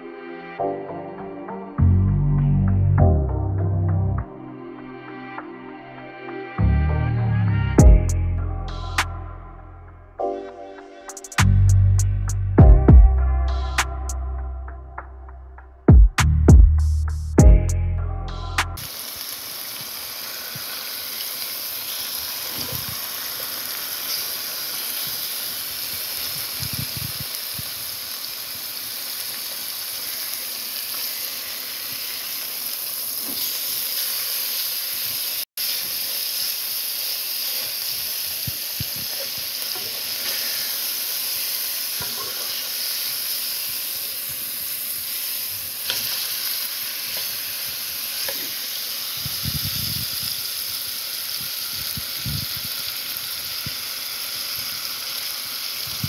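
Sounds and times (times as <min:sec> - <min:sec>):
steak sizzling in a pan: 0:18.8 - 0:56.0.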